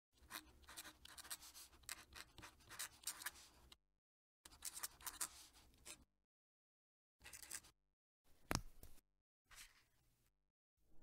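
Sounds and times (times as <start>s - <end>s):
pen nib scratching paper: 0.2s - 3.6s, 4.5s - 6.0s.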